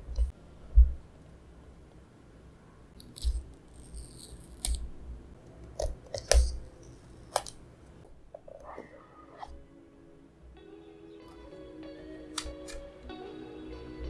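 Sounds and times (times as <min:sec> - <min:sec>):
paper seal tearing: 0:03.0 - 0:04.8.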